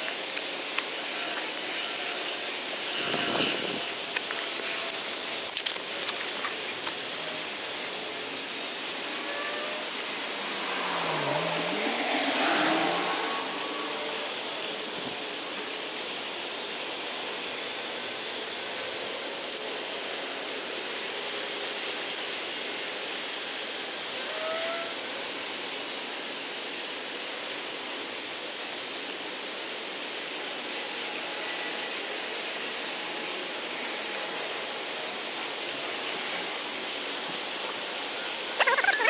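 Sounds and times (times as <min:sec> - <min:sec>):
outdoor background hiss: 0:00.0 - 0:38.8
faint rising chirp: 0:08.3 - 0:14.3.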